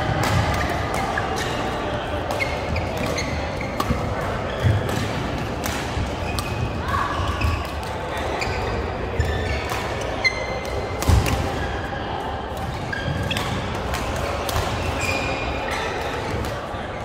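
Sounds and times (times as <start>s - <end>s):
rackets striking shuttlecocks: 0.1s - 11.8s
shoes squeaking on floor: 2.4s - 4.9s, 8.3s - 10.6s.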